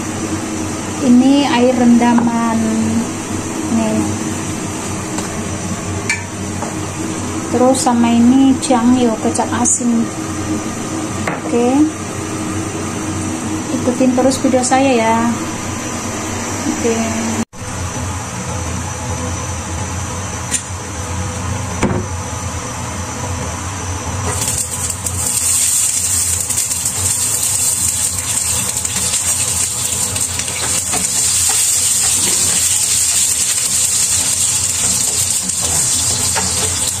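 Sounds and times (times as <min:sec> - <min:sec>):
garlic sizzling in hot oil: 0:24.2 - 0:37.0.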